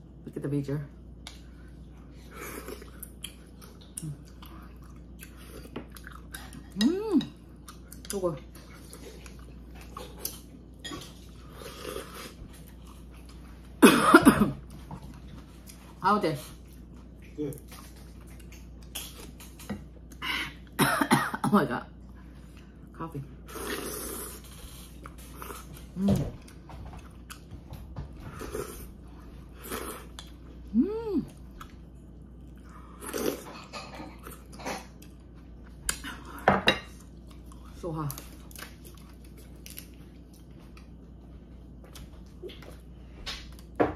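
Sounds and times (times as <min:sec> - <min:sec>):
person humming: 0:06.8 - 0:07.3, 0:30.7 - 0:31.4
breathy cough-like outburst: 0:13.8 - 0:14.6, 0:20.8 - 0:21.6
person slurping and chewing: 0:23.5 - 0:25.8.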